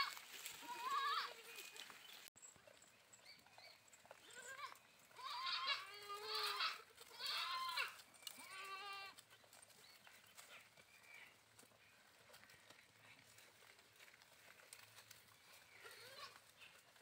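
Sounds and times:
sheep and goats bleating: 0.0 - 2.2, 4.0 - 13.6, 14.3 - 17.0.

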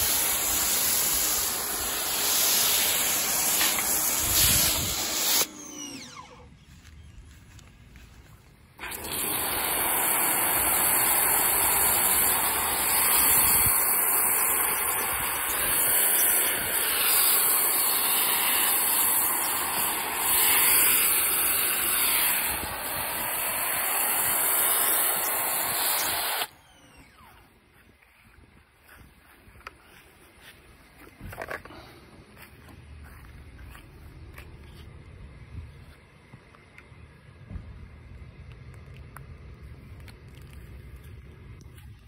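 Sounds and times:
pressure washer spray hiss: 0.0 - 5.5, 8.8 - 26.5.

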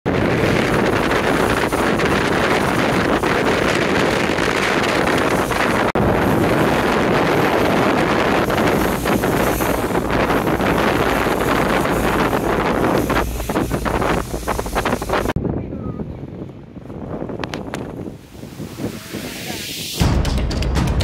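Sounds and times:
wind buffeting microphone: 0.0 - 20.1
water rushing along boat hull: 0.1 - 15.4.

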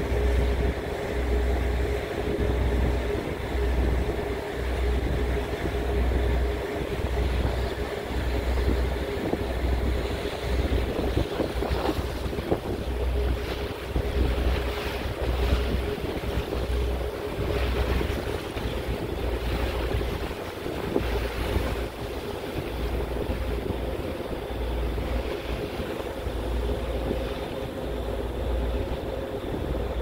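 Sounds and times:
ferry engines humming: 0.0 - 30.0
water rushing along hull: 0.0 - 30.0
wind gusting against microphone: 0.0 - 30.0.

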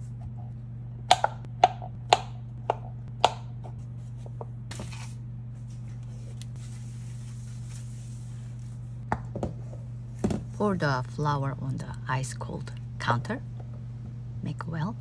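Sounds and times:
steady low hum: 0.0 - 15.0
knife chopping on plastic board: 1.1 - 3.8.

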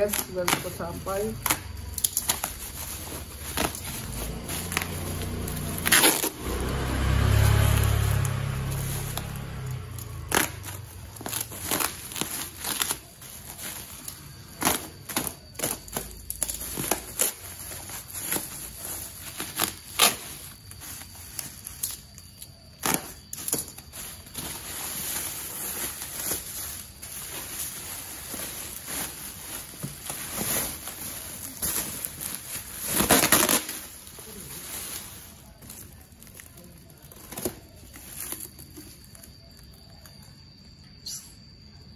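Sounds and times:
plastic wrapping crinkling: 0.0 - 40.3
plastic bag pulled off box: 22.8 - 39.0.

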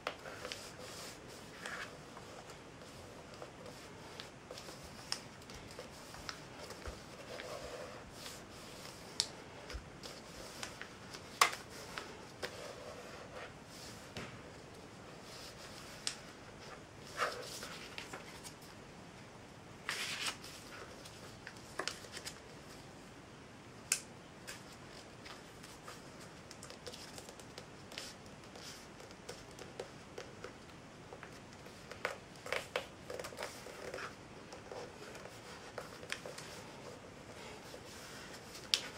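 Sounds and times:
paper rustling and crackling: 19.8 - 22.6.

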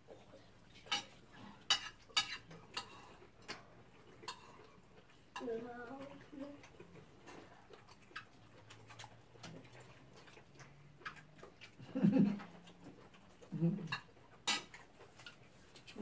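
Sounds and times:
cutlery clicking on plates: 0.8 - 4.7, 13.8 - 15.4.

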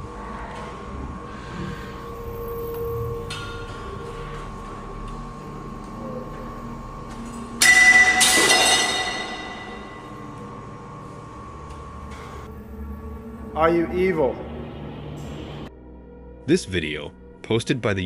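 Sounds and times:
faint steady hum: 0.0 - 16.2
metal framing crashing against glass: 7.6 - 10.2.

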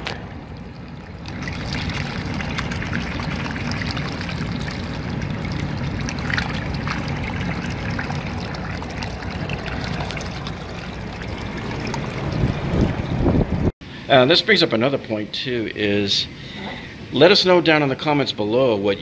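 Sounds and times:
water gushing and splashing on soil: 0.0 - 13.7.

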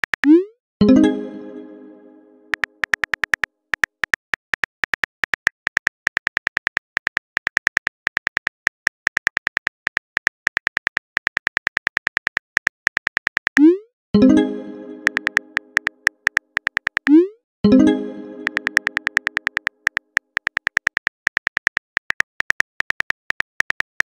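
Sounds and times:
phone keyboard typing clicks: 2.5 - 13.7, 15.0 - 17.2, 18.4 - 24.0.

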